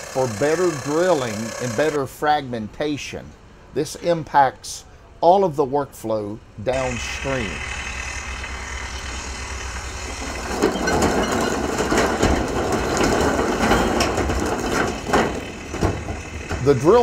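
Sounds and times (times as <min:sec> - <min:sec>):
heavy diesel machinery running: 0:00.0 - 0:02.0, 0:06.7 - 0:17.0
rocks clattering into truck bed: 0:10.2 - 0:17.0.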